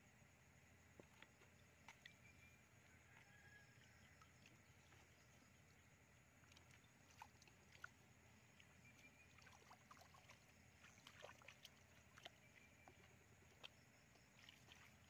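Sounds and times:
hands splashing in muddy water: 0:06.4 - 0:15.0.

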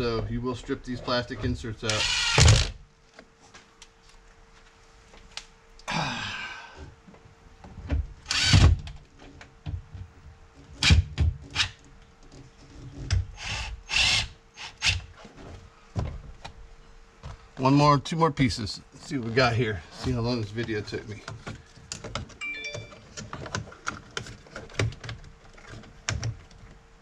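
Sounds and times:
power drill driving screws: 0:01.9 - 0:02.8, 0:08.3 - 0:08.8, 0:13.4 - 0:15.0.

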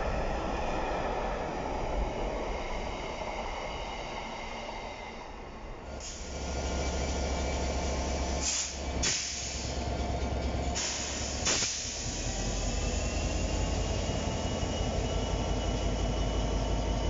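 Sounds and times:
diesel locomotive engine idling: 0:05.9 - 0:17.0
air hissing bursts: 0:08.4 - 0:09.8, 0:10.8 - 0:12.6.

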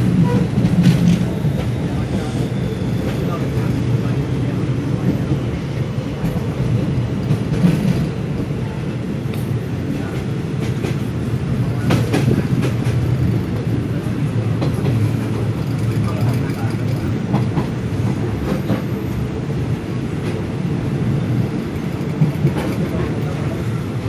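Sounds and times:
train wheels rumbling on rails: 0:00.0 - 0:24.0
sharp track clacks: 0:21.6 - 0:23.3.

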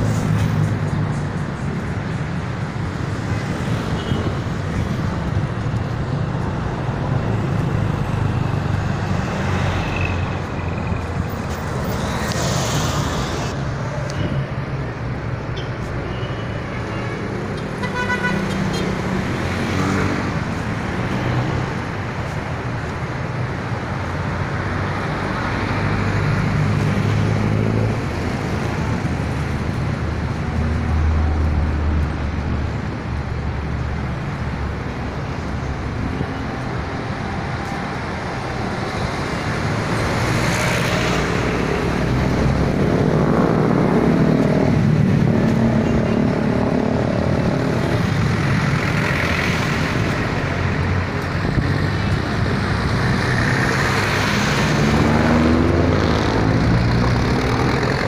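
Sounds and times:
road traffic: 0:00.0 - 0:58.0
vehicle passing: 0:37.6 - 0:58.0.

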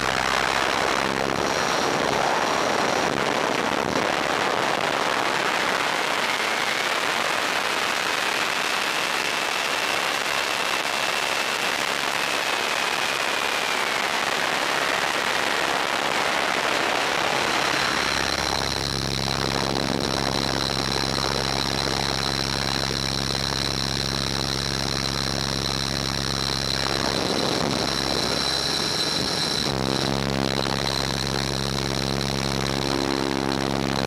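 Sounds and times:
rushing air and rotor: 0:00.0 - 0:03.9, 0:16.2 - 0:33.4
faint motor whine: 0:08.3 - 0:34.0.

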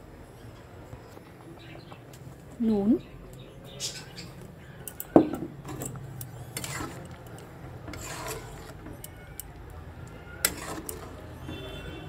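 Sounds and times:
metal spatula scraping pan: 0:05.5 - 0:09.5, 0:10.1 - 0:12.0.

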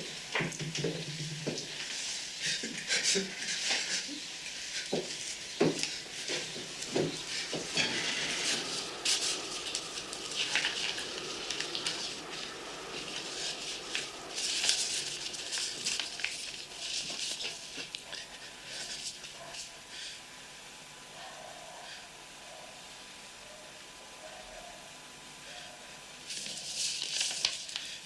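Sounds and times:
paper rustling and crackling: 0:03.4 - 0:18.0, 0:26.3 - 0:27.9.

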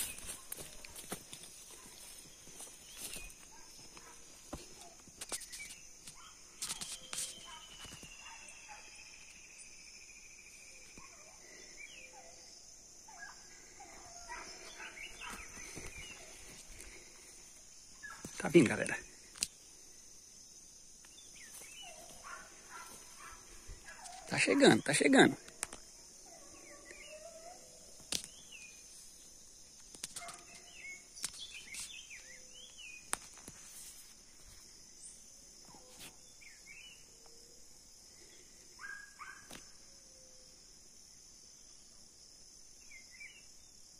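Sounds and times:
high insect drone: 0:00.0 - 0:43.9
bird chirps: 0:04.8 - 0:12.4
distant hounds baying: 0:06.1 - 0:09.2, 0:10.8 - 0:17.4, 0:21.7 - 0:25.3, 0:26.2 - 0:28.0, 0:38.8 - 0:39.7.

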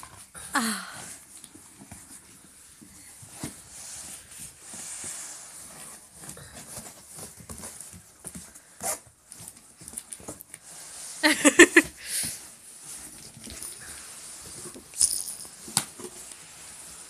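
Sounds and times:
cardboard box rustling on carpet: 0:01.6 - 0:14.9.

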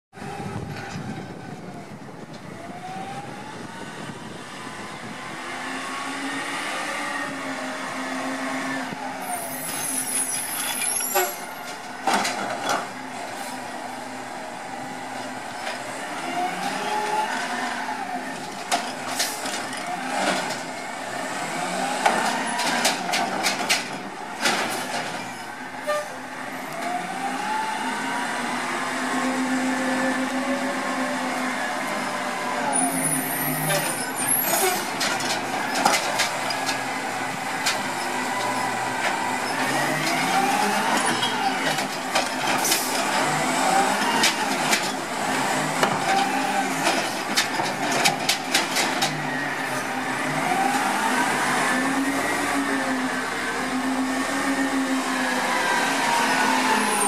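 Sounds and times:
carts clanking and banging: 0:22.0 - 0:26.0, 0:32.8 - 0:49.4
diesel truck engine revving: 0:36.3 - 0:46.9.

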